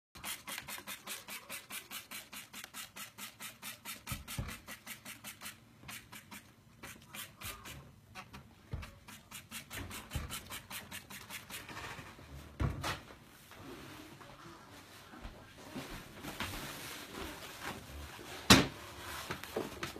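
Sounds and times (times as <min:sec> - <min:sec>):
trigger spray bottle spraying: 0:00.2 - 0:07.8.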